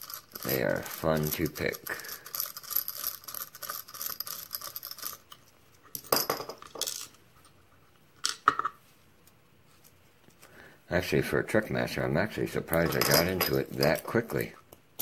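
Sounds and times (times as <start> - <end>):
lock pick ticking and scraping: 0.0 - 5.4.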